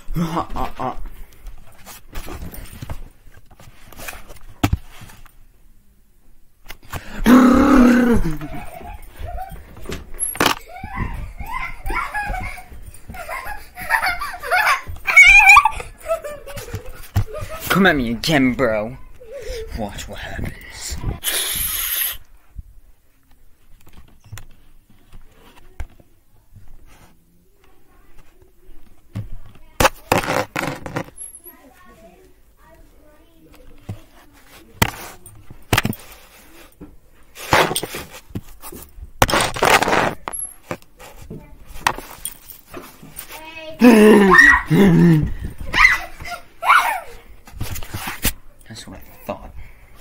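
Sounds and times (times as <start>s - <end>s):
footsteps: 8.2s - 17.9s
handheld camera knocks and shuffling: 8.2s - 18.0s, 28.1s - 31.5s, 33.5s - 43.8s, 45.2s - 48.6s
shushing hiss: 21.2s - 22.3s.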